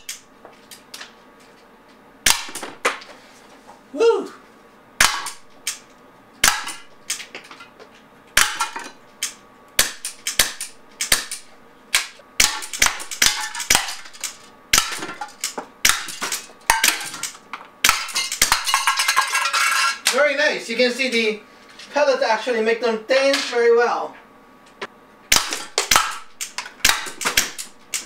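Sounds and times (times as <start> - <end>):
pellets hitting tin cans: 14.8 - 20.2
pellet pistol shots: 25.3 - 27.7.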